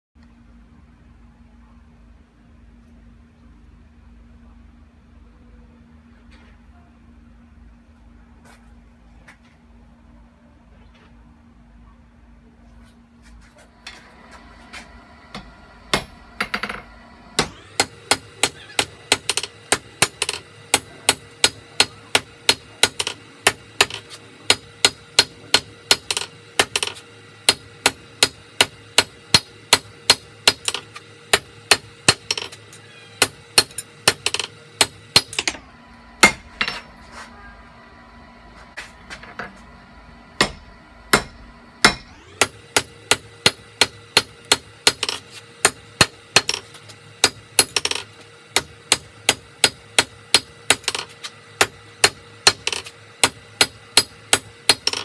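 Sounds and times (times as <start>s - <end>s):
low steady hum: 0.2s - 55.0s
hammer striking steel on anvil: 15.3s - 32.6s, 33.2s - 35.6s, 36.2s - 36.9s, 40.4s - 55.0s.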